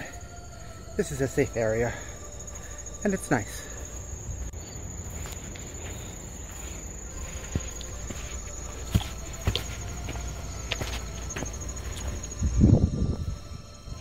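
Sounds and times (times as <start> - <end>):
insects trilling: 0.0 - 14.0
footsteps on wooden boardwalk: 5.1 - 12.2.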